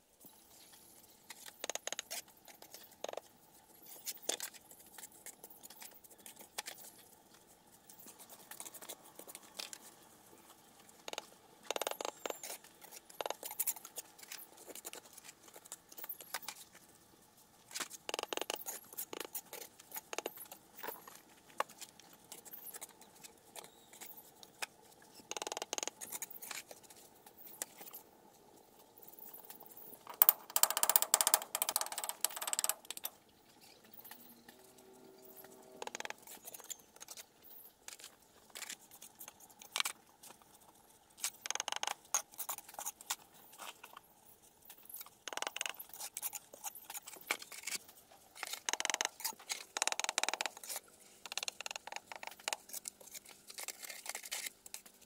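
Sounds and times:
faint steady hum: 0:00.0 - 0:55.0
small hard objects clinking: 0:29.0 - 0:34.3.

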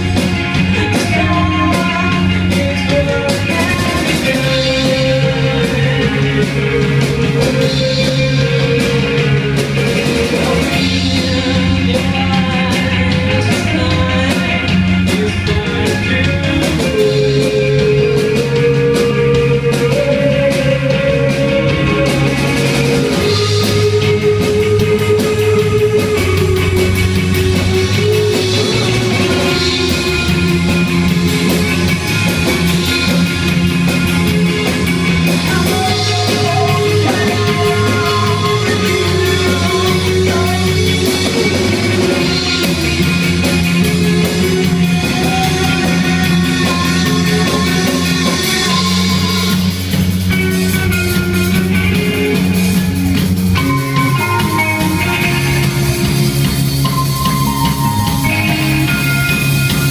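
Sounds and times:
low bass line: 0:00.0 - 0:59.9
rock band playing live: 0:00.0 - 0:59.9.

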